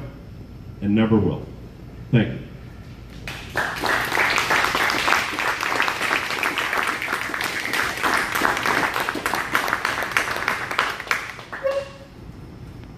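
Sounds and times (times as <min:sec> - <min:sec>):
audience applauding: 0:03.2 - 0:12.0.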